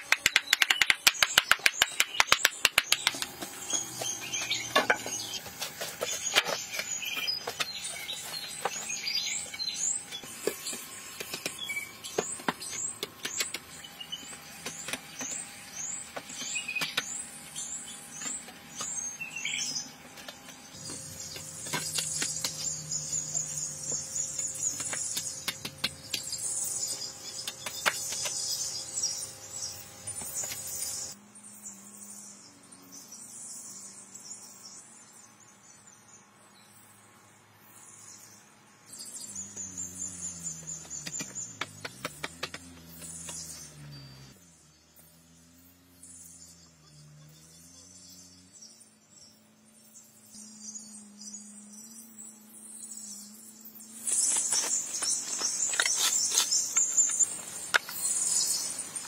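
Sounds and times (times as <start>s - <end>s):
wildlife chirping: 37.7s - 59.0s.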